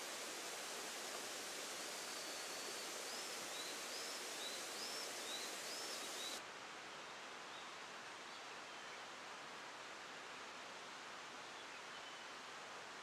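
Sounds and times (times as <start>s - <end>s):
outdoor rushing hiss: 0.0s - 6.4s.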